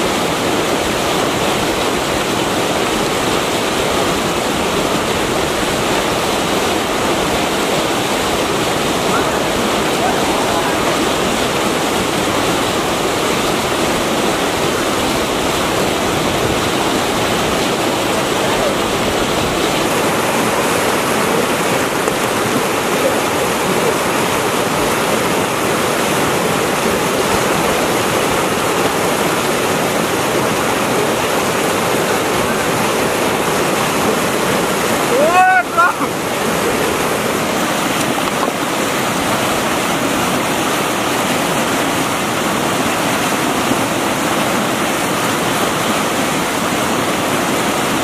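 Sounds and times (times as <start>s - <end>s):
river rapids rushing over boulders: 0.0s - 48.0s.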